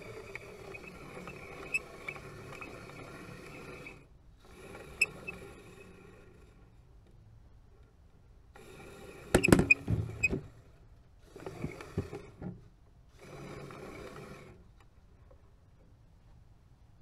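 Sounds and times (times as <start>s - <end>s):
toy winch motor whirring: 0.0s - 6.7s, 13.2s - 14.6s.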